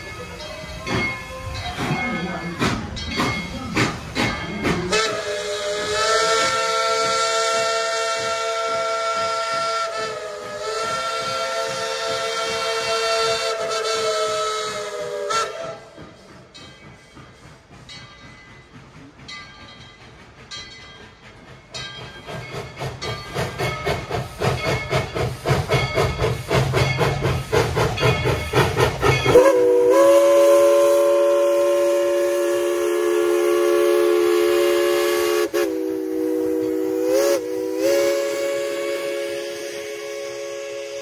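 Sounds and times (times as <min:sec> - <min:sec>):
steam locomotive exhaust chuffing: 0:00.0 - 0:41.0
steam whistle blast: 0:04.9 - 0:15.9, 0:29.3 - 0:41.0.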